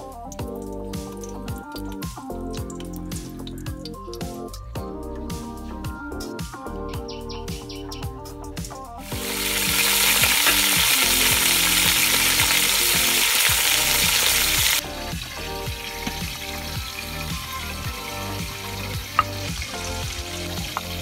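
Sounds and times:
background music: 0:00.0 - 0:21.0
chicken sizzling in hot oil: 0:09.0 - 0:21.0.

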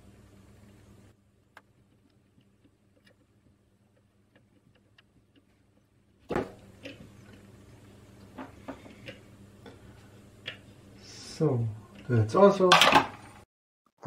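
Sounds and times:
light soldering ticks and clicks: 0:01.5 - 0:05.9.

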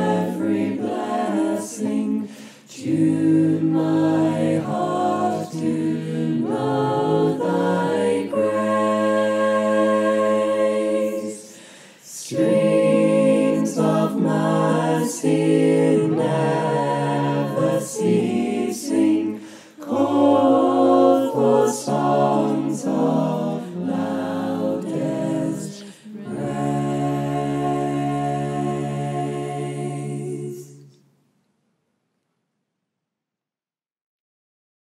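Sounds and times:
choir singing a cappella: 0:00.0 - 0:31.1
singers breathing: 0:02.2 - 0:02.7, 0:11.4 - 0:12.2, 0:19.4 - 0:19.8, 0:25.7 - 0:26.2.

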